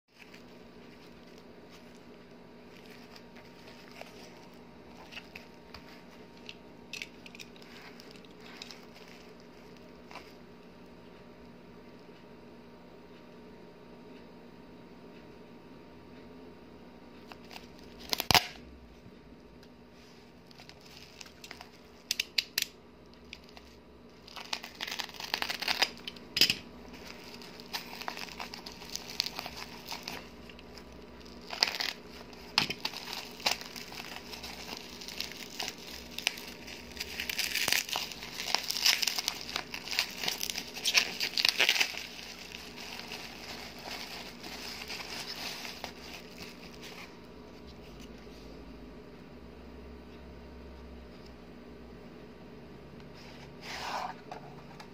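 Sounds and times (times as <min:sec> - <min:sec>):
bubble wrap crinkling: 0:00.1 - 0:10.6, 0:17.2 - 0:18.6, 0:20.0 - 0:48.4.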